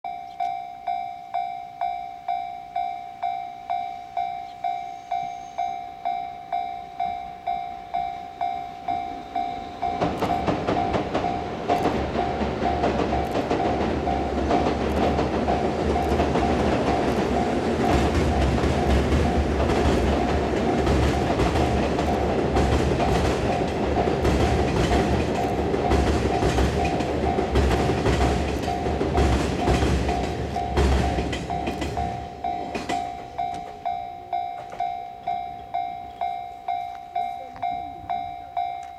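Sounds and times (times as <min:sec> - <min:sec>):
level crossing warning bell: 0:00.0 - 0:38.9
train crossing steel bridge: 0:00.1 - 0:38.9
wheels clattering over rail joints: 0:09.2 - 0:35.0.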